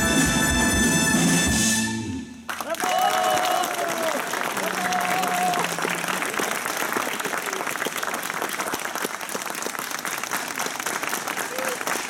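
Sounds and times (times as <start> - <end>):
band held notes: 0.0 - 2.4
audience applauding: 2.4 - 12.0.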